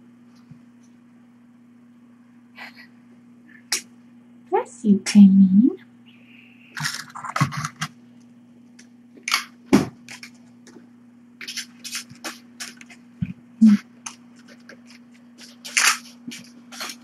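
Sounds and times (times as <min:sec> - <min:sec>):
low electrical hum: 0:00.0 - 0:17.0
scratching and rustling: 0:11.4 - 0:13.0, 0:13.7 - 0:17.0.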